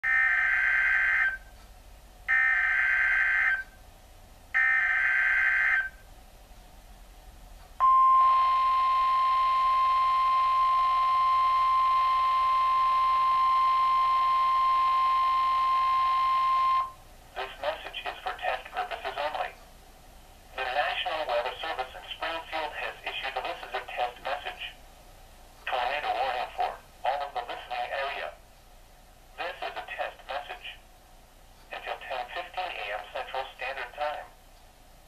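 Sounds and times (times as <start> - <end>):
long steady alert tone: 0.0 - 1.4, 2.3 - 3.8, 4.6 - 6.0, 7.8 - 17.0.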